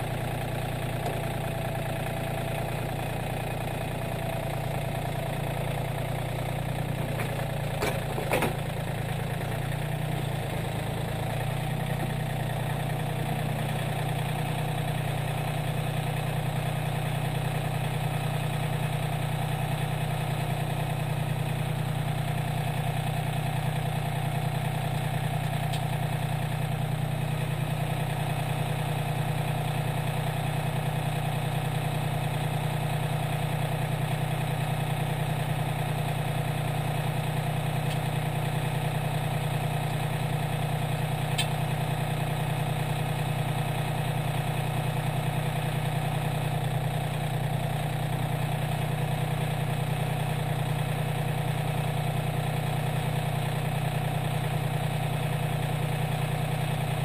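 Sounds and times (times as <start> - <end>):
tractor diesel engine idling: 0.0 - 57.0.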